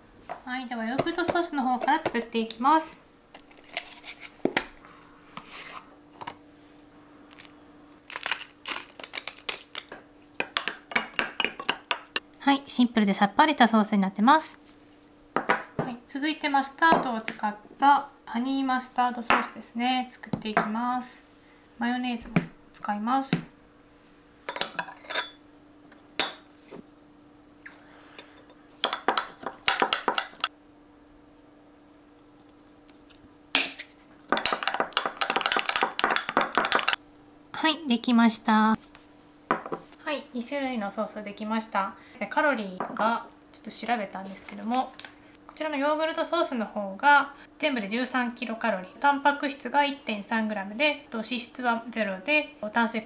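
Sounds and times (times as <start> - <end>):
pepper mill grinding: 7.3 - 10.0, 28.8 - 30.5, 34.3 - 37.0
metal spoon clinking on glass: 24.5 - 25.4.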